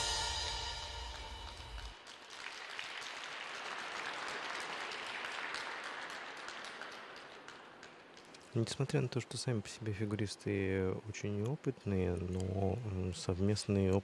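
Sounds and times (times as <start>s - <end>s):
program music: 0.0s - 1.9s
audience applause: 0.0s - 8.1s.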